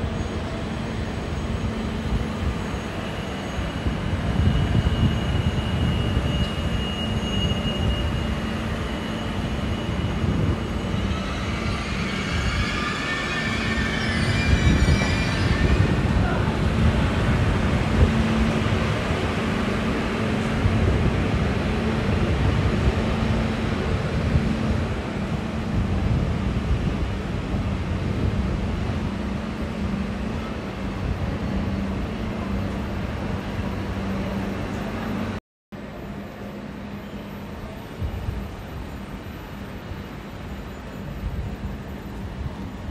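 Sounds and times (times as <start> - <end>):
train rumbling: 0.0 - 42.9
high-pitched wavering brake squeal: 0.2 - 16.5.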